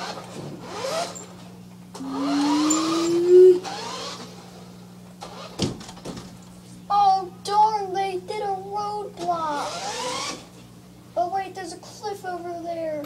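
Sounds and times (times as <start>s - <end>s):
toy car motor whirring: 0.0s - 1.3s, 2.0s - 4.5s, 5.2s - 5.7s, 9.3s - 10.5s.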